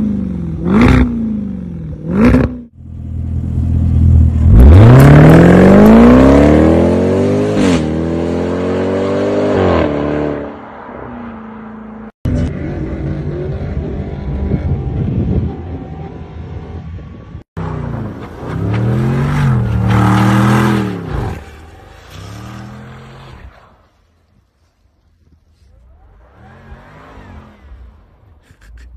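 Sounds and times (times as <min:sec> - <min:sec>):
engine revving: 0:03.6 - 0:10.5, 0:12.3 - 0:23.5
car accelerating hard: 0:04.3 - 0:10.6.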